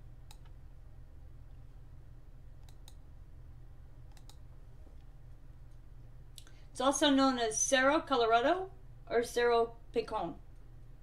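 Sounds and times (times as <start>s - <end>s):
steady low hum: 0.0s - 11.0s
computer mouse clicking: 0.2s - 0.6s, 2.6s - 3.0s, 4.1s - 4.4s.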